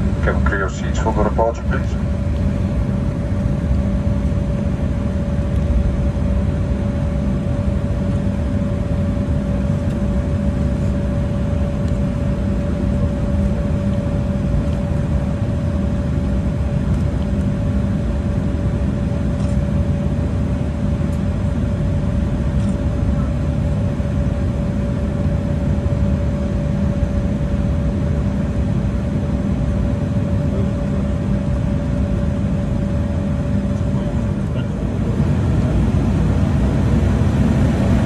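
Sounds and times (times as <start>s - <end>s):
jet engines rumbling: 0.0s - 38.0s
steady mid-pitched hum: 0.0s - 38.0s.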